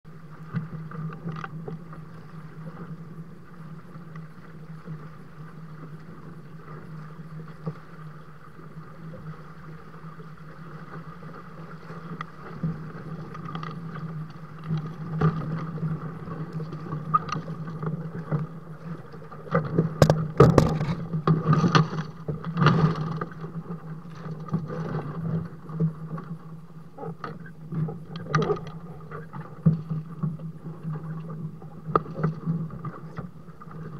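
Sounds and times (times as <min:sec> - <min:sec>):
water slapping against hulls: 0:12.0 - 0:26.4.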